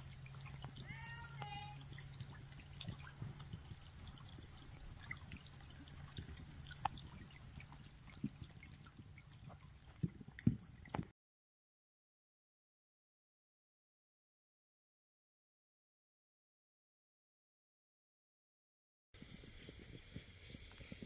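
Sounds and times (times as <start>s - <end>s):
water trickling and dripping: 0.0s - 11.1s.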